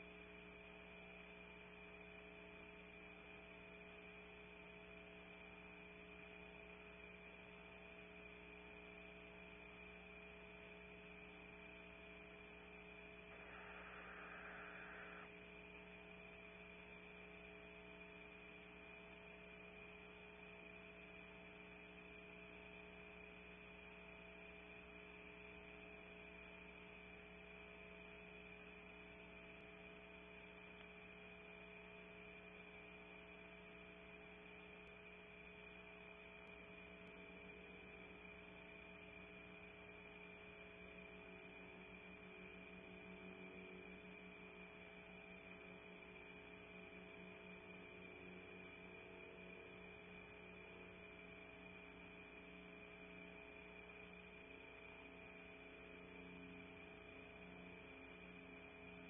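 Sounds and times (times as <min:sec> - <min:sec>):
electrical hum with hiss: 0:00.0 - 0:59.0.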